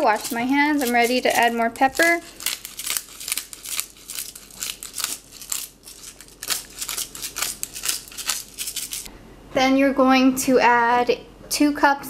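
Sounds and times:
pepper mill grinding: 0:00.0 - 0:09.1.

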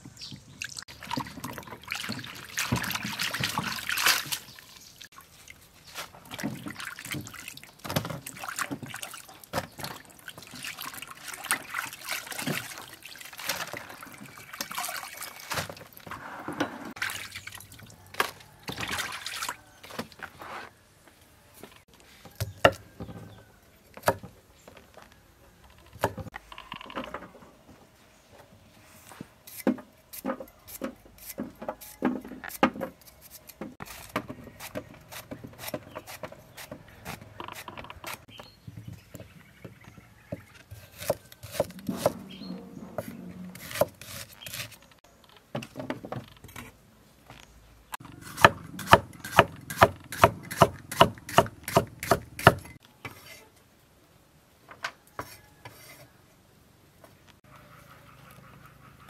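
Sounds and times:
cleaver chopping on wooden board: 0:48.2 - 0:52.7.

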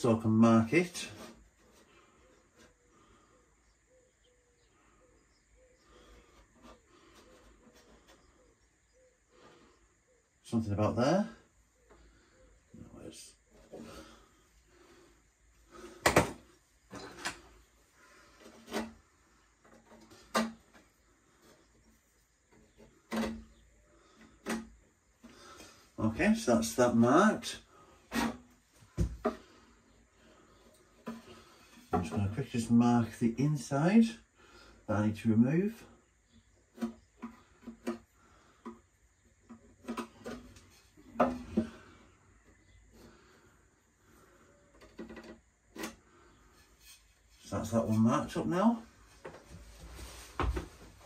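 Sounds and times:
wooden upright knocking: 0:28.9 - 0:29.5.

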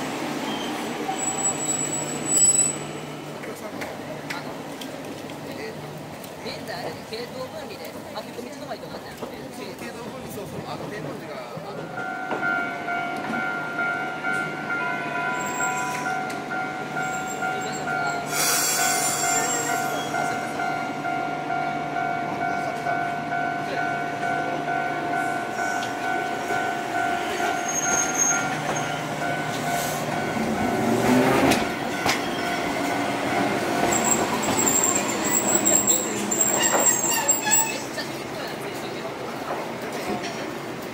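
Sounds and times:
tram rolling over crossing: 0:00.0 - 0:40.9
tram wheel squeal: 0:00.3 - 0:03.2, 0:11.7 - 0:38.2
level-crossing warning bell: 0:11.8 - 0:37.7.

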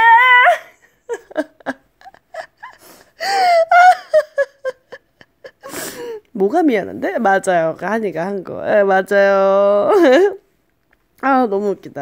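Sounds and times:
woman laughing breathily: 0:00.6 - 0:06.3.

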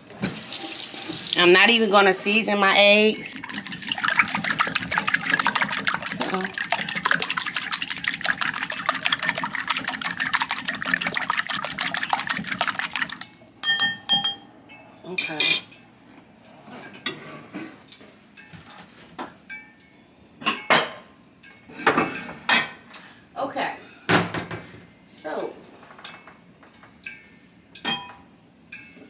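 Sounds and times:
fork beating eggs in glass bowl: 0:03.2 - 0:13.9
dishes clinking on counter: 0:13.6 - 0:14.5, 0:15.1 - 0:15.8, 0:20.4 - 0:22.8, 0:25.9 - 0:29.0.

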